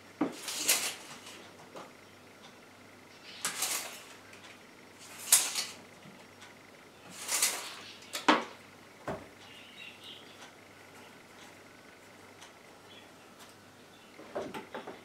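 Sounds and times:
tape measure blade rasping: 0:00.4 - 0:01.4, 0:03.4 - 0:04.1, 0:05.0 - 0:05.8, 0:07.1 - 0:07.8
tape measure clacking: 0:05.0 - 0:05.8.

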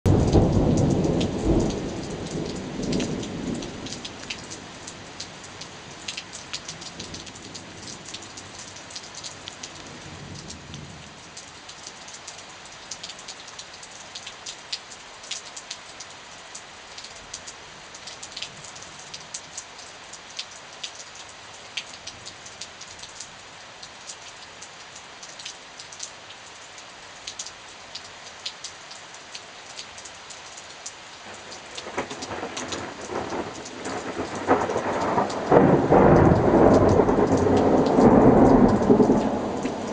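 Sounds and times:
heavy rain falling: 0:00.0 - 0:39.9
thunder rumbling: 0:31.8 - 0:39.9.

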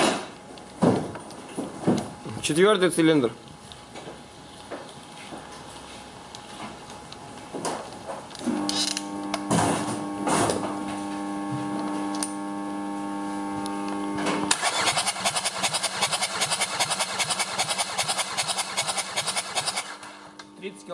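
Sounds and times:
mechanical hum: 0:00.0 - 0:20.9
engine cranking: 0:14.5 - 0:20.0.

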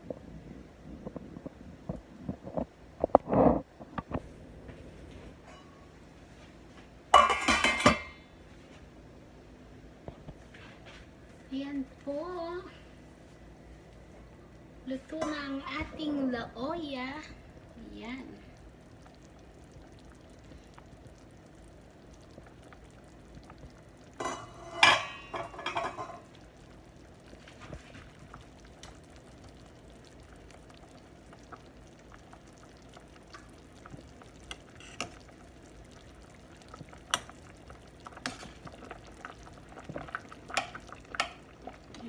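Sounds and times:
metal clattering against pot: 0:07.2 - 0:08.2, 0:24.2 - 0:26.2
soup bubbling faintly: 0:10.2 - 0:42.0.

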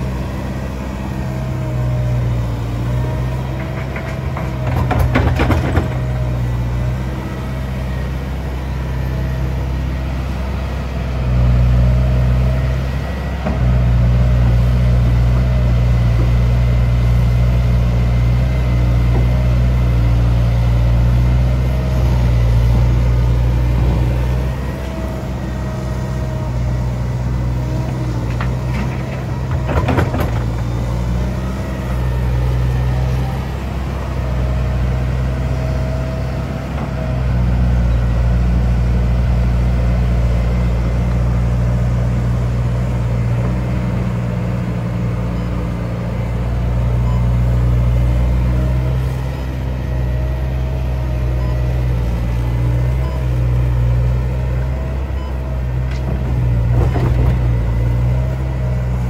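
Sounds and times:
excavator diesel engine: 0:00.0 - 0:59.0
clatter of knocks: 0:03.4 - 0:06.3, 0:27.8 - 0:30.8, 0:55.9 - 0:57.6.

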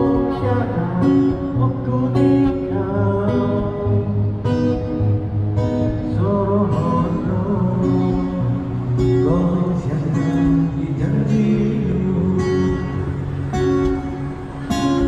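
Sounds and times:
strummed acoustic guitar: 0:00.0 - 0:15.0.

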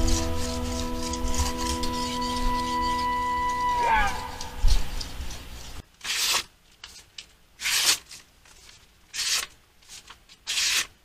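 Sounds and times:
knife slicing through paper: 0:00.0 - 0:03.1, 0:05.3 - 0:11.0.

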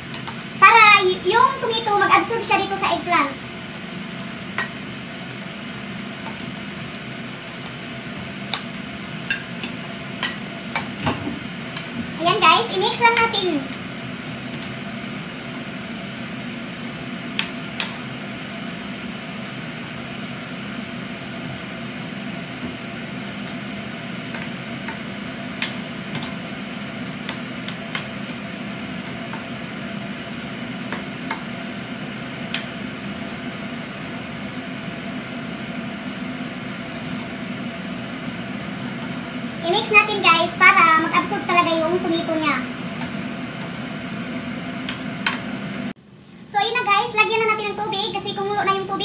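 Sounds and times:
vegetables sizzling in frying pan: 0:00.0 - 0:45.9.

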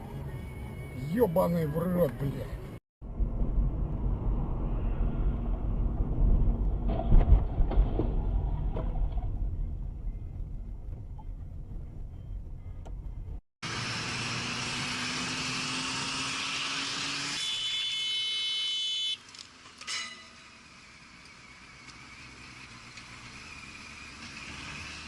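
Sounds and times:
car engine and road rumble: 0:00.0 - 0:25.0
low hum: 0:02.5 - 0:13.4
hissing road noise: 0:13.6 - 0:17.4, 0:19.1 - 0:25.0.

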